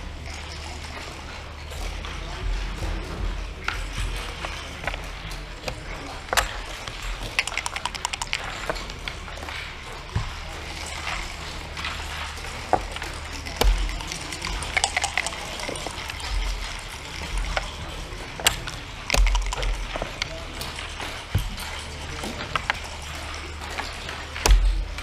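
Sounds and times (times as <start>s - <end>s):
checkers clacking on wooden board: 3.8s - 25.0s
dice rattling: 6.3s - 8.9s, 12.7s - 17.8s, 18.4s - 20.3s.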